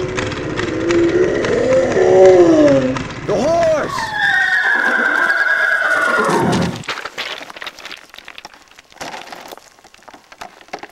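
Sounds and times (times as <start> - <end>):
horse whinnying: 3.8 - 6.8.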